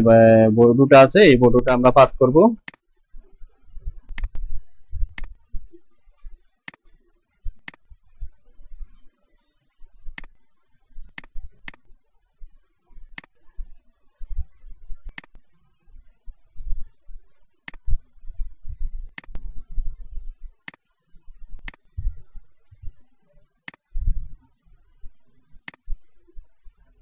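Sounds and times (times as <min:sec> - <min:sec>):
computer mouse clicking: 0:02.6 - 0:02.8, 0:04.1 - 0:04.4, 0:07.5 - 0:07.9, 0:11.2 - 0:11.9, 0:15.1 - 0:15.4, 0:17.6 - 0:17.9, 0:19.2 - 0:19.4, 0:21.6 - 0:21.9, 0:25.6 - 0:25.9
low rumble: 0:24.0 - 0:24.4.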